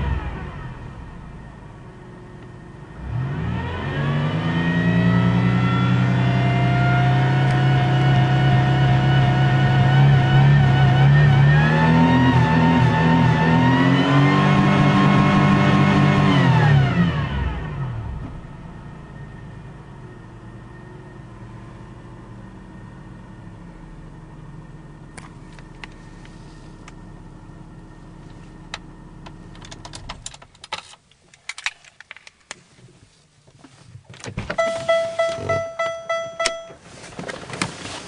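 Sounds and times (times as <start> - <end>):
car engine idling: 18.3 - 30.5
dashboard warning chime: 34.5 - 36.9.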